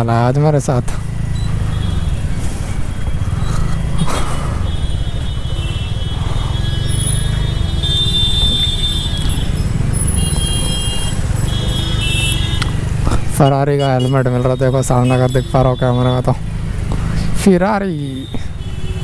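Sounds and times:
scooter engine running: 1.1 - 13.0.

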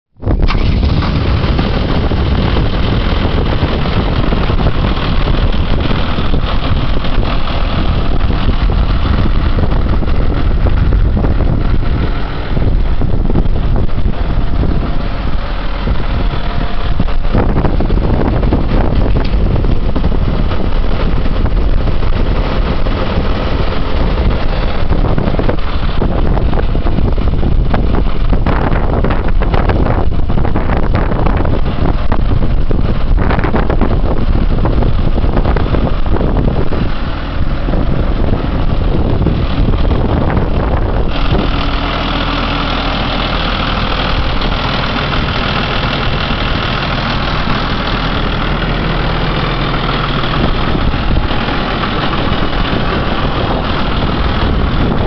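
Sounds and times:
wind buffeting microphone: 0.1 - 55.0
tractor diesel engine idling: 0.2 - 55.0.

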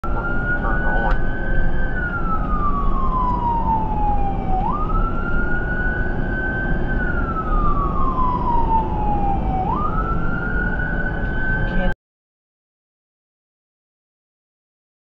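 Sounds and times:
engine and tyre rumble: 0.0 - 11.9
ambulance siren wailing: 0.0 - 12.0.

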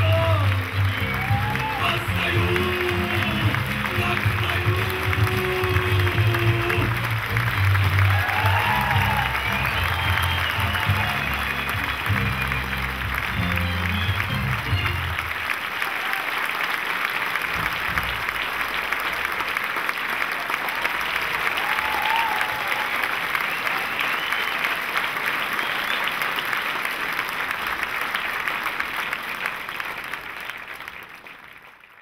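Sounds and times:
low music notes: 0.0 - 15.4
audience applauding: 0.0 - 32.0.

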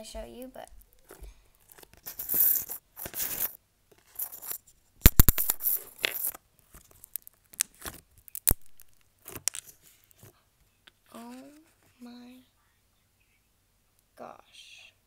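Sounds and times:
slime popping: 5.0 - 6.3, 6.9 - 9.7
slime squishing and tearing: 5.0 - 9.8.

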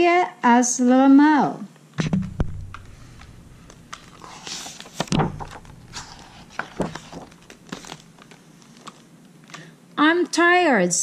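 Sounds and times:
page turning swish: 2.0 - 8.4
book handling taps: 2.0 - 9.0.

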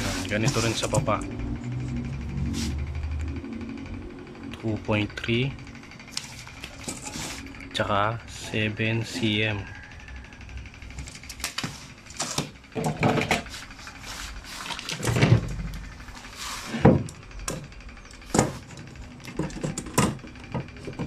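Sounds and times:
hand tools knocking on wood: 19.3 - 21.0.

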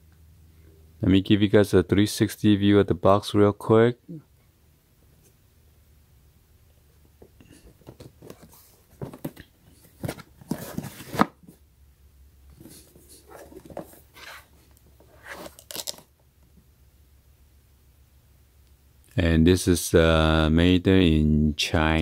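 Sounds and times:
cardboard box rustling and scraping: 8.2 - 11.4, 12.6 - 15.9.

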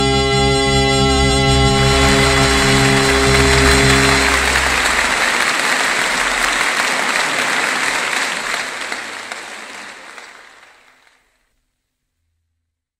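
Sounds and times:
large audience applauding: 1.4 - 11.3.

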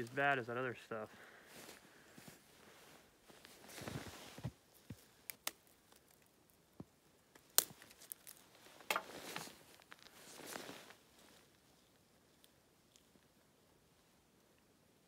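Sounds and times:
winter jacket rustling: 1.2 - 5.0, 8.5 - 11.6.

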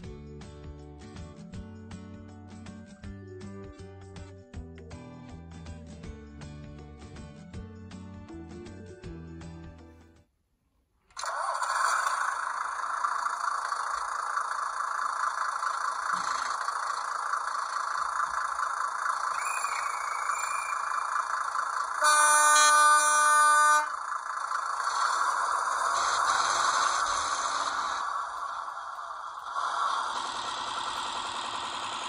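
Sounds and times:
diesel engine through small speaker: 11.2 - 32.0
horn: 22.0 - 23.9.

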